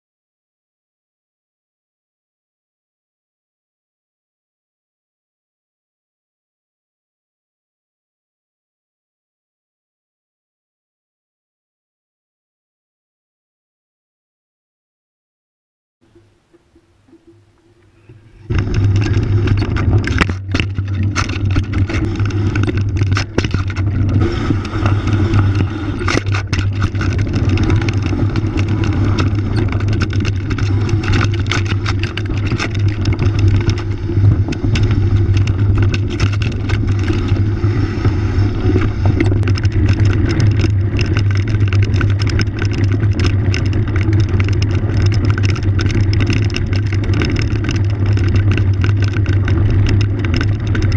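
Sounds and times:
wind noise: 16.0s - 50.9s
bike rattling over bumps: 16.1s - 50.9s
bike tyres rolling on gravel: 16.1s - 50.9s.

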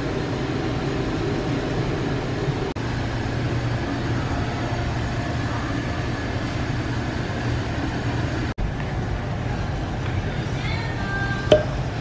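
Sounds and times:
low constant hum: 0.0s - 12.0s.

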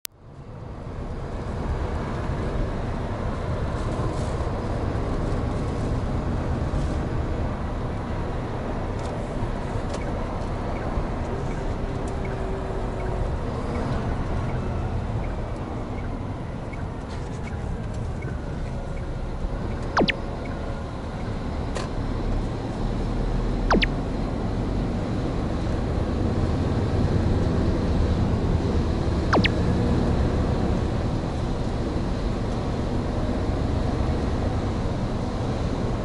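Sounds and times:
truck engine and tyre noise: 0.0s - 36.0s
sharp falling squeak: 23.7s - 23.9s.

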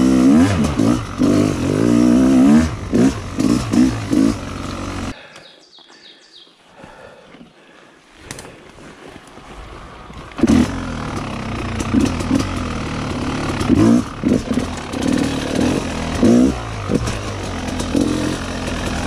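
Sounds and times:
two-stroke engine lugging: 0.0s - 5.3s, 9.3s - 19.0s.

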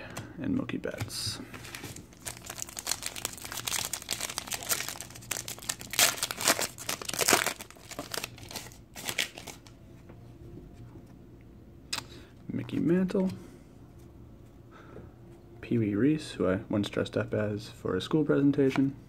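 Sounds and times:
foil wrapper crinkling and tearing: 1.7s - 9.7s.

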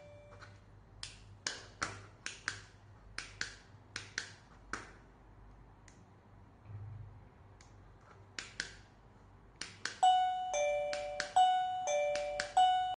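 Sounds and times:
doorbell ding-dong chime: 0.0s - 0.4s, 10.0s - 13.0s.

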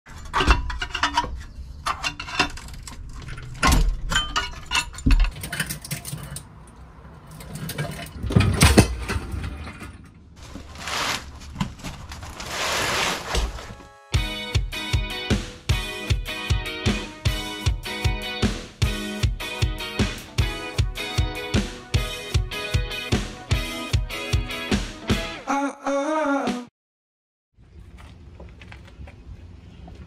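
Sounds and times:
metal clanks and knocks: 0.1s - 6.5s, 7.3s - 10.3s
music: 13.6s - 25.6s, 26.2s - 26.7s.

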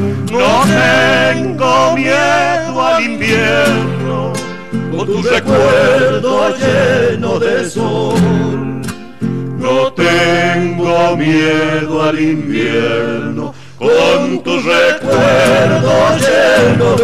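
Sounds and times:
male vocal quartet singing harmony: 0.0s - 8.9s, 9.6s - 17.0s
strummed acoustic guitars: 0.0s - 17.0s.

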